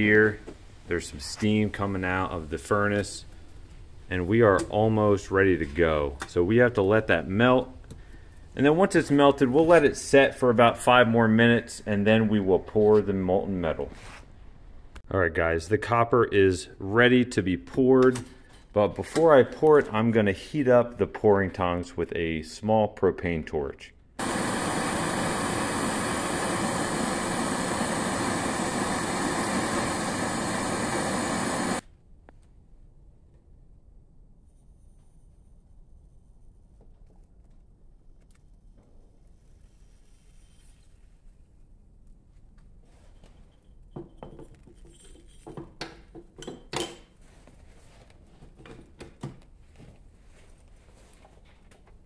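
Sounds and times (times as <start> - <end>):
hand torch hissing: 24.2 - 31.8
metallic clinks and knocks: 43.2 - 47.1.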